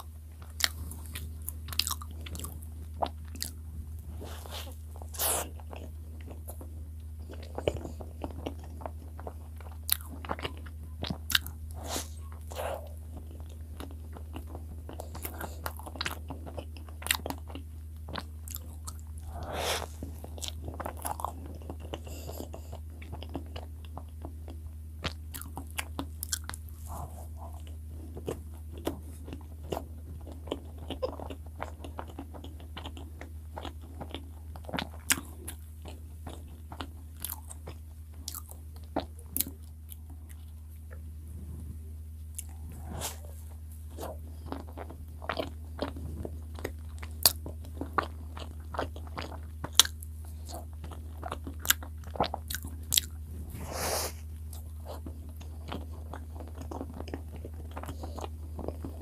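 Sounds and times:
person chewing bread: 0:00.0 - 0:59.0
low hum: 0:37.8 - 0:47.8.

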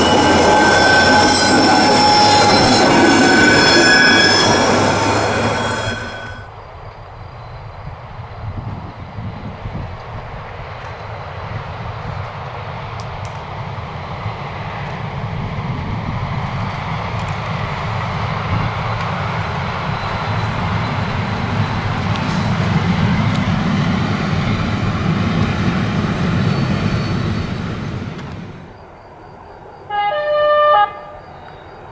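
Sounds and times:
locomotive engine rumble: 0:00.0 - 0:06.5, 0:09.9 - 0:28.9.

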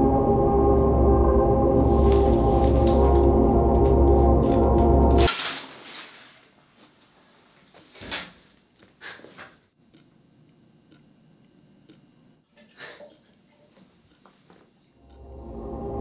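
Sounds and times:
low droning music: 0:00.0 - 0:05.3, 0:15.0 - 0:16.0.

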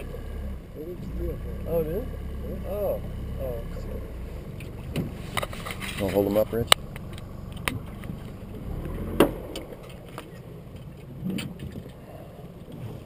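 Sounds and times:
river water rumbling: 0:00.0 - 0:13.0
wind: 0:00.0 - 0:13.0
knocks and clicks of gear: 0:04.5 - 0:13.0.

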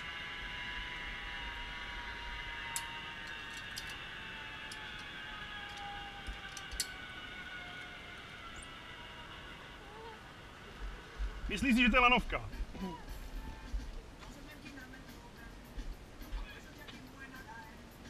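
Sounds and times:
faint high whine: 0:00.0 - 0:18.0
metallic clicks of carabiners: 0:02.7 - 0:04.0, 0:04.7 - 0:07.0.

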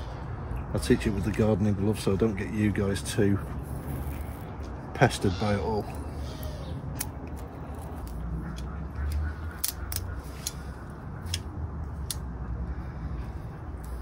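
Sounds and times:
steady low rumble: 0:05.8 - 0:14.0.

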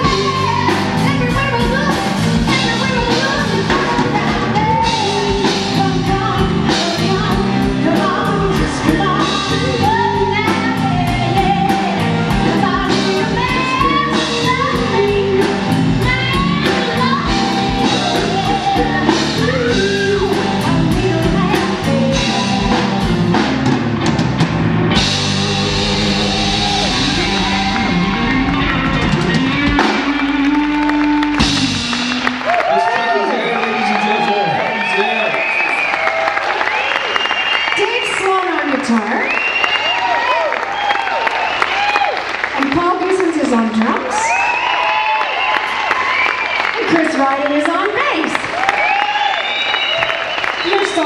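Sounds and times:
woman singing: 0:00.0 - 0:23.1
blues-rock band playing: 0:00.0 - 0:34.8.

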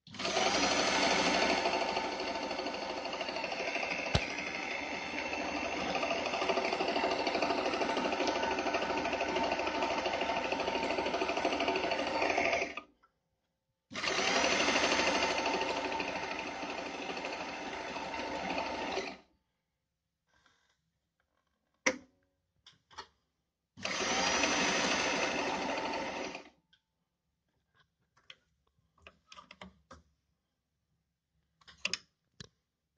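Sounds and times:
sewing machine stitching: 0:00.0 - 0:12.8, 0:13.9 - 0:19.2, 0:23.8 - 0:26.5.

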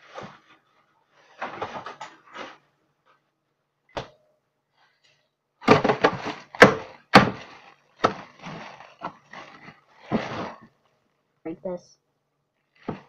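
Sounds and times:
ice bag thunks on counter: 0:05.6 - 0:08.5
plastic bag crinkling: 0:05.7 - 0:11.2.

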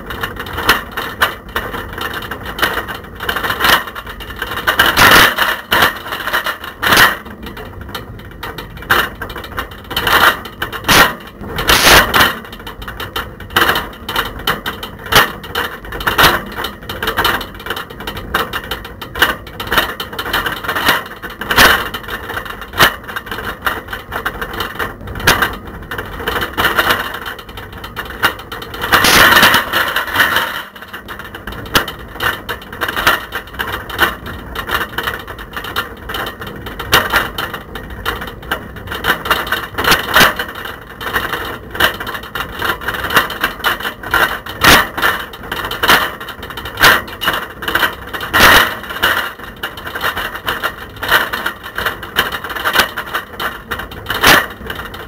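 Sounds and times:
camera rattling in bicycle basket: 0:00.0 - 0:55.0.

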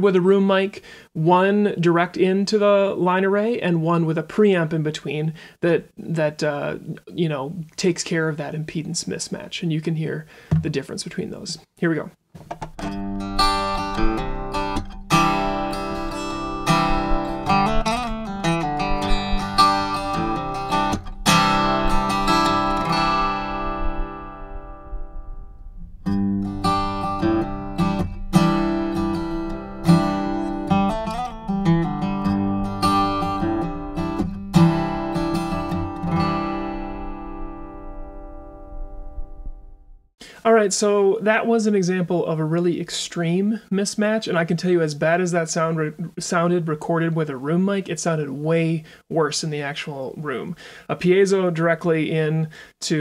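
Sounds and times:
acoustic guitar through pa speaker: 0:00.0 - 0:39.3, 0:40.2 - 0:53.0.

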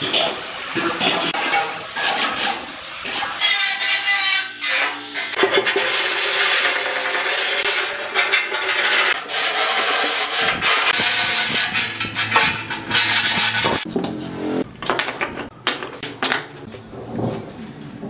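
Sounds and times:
sandpaper rasping on steel: 0:01.4 - 0:13.9.

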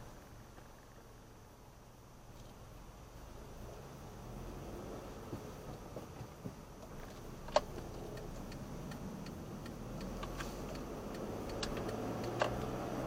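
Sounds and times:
engine and tyres humming: 0:00.0 - 0:13.0
car turn indicator ticking: 0:05.3 - 0:13.0.

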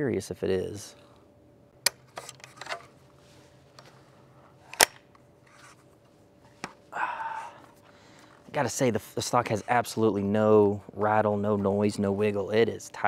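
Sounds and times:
rifle stock snapping into place: 0:04.7 - 0:05.0.

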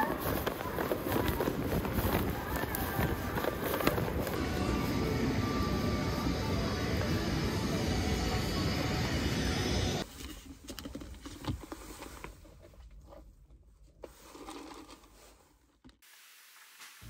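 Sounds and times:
clothing rustling: 0:00.0 - 0:04.4.

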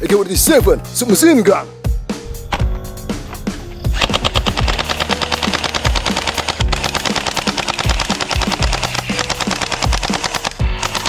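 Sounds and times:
music with deep bass hits: 0:01.6 - 0:09.2
toy blaster rapid firing: 0:04.0 - 0:11.0.

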